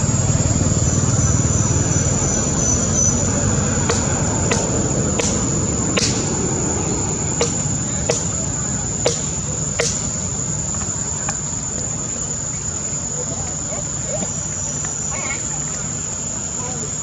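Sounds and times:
low rumbling background: 0.0s - 13.0s
high-pitched insect drone: 0.0s - 17.0s
sharp clicks: 3.9s - 6.6s, 9.1s - 10.2s.

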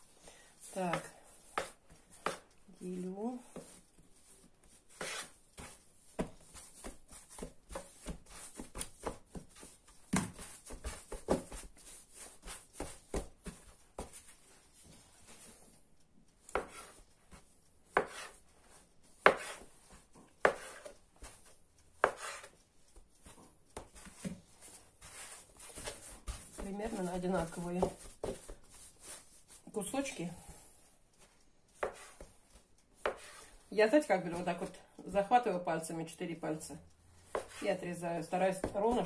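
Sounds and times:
dough handling taps: 20.4s - 29.6s.

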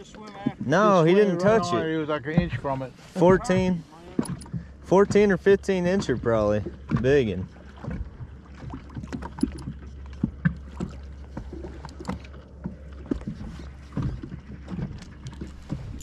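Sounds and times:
low hum: 0.0s - 16.0s
waves slapping boat hull: 0.0s - 16.0s.

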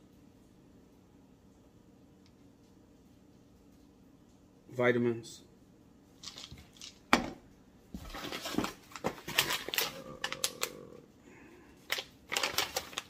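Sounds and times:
plastic packaging crinkling: 6.2s - 7.0s, 8.0s - 10.7s, 11.8s - 13.0s.

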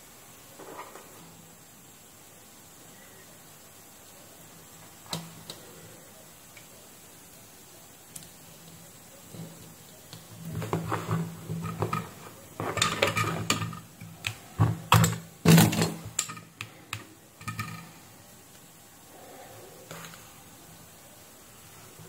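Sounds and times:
tools clicking and knocking on workbench: 9.3s - 17.9s.

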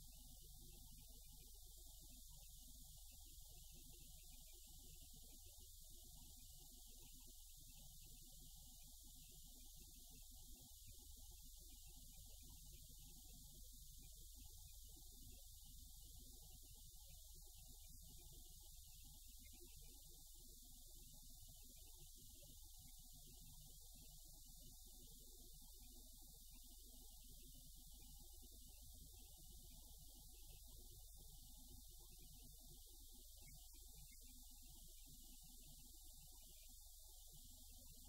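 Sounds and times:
faint low hum and hiss: 0.0s - 38.0s.

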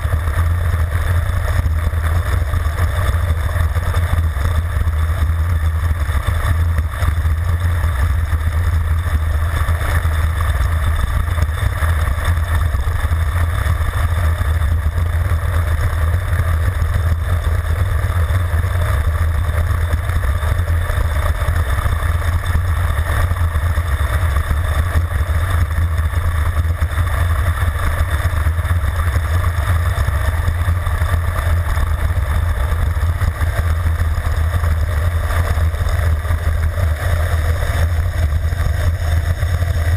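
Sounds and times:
low rumble of bike: 0.0s - 39.9s.

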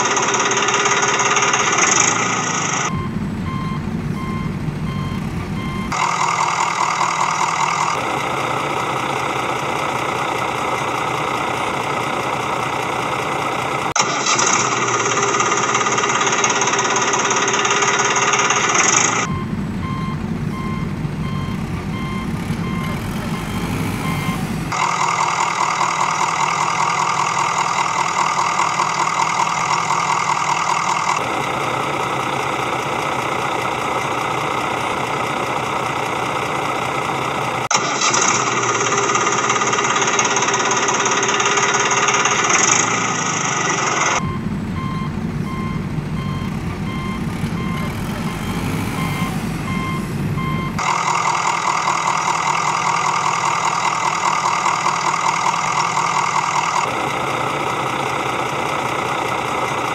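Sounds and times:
heavy vehicle engine running: 0.0s - 59.9s
reversing beep: 2.9s - 6.2s, 18.0s - 24.5s, 44.1s - 50.9s.

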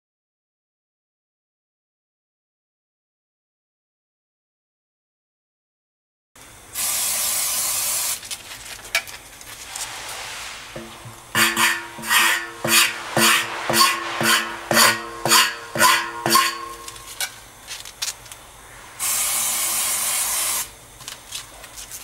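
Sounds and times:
steady hiss: 6.6s - 22.0s
scraper scraping rubber: 9.6s - 17.2s.

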